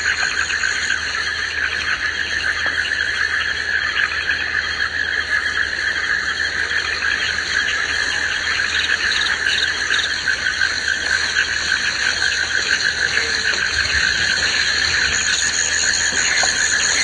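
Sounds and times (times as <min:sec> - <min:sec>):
frogs and insects chorus: 0:00.0 - 0:17.0
rapid pulsing trills: 0:00.0 - 0:17.0.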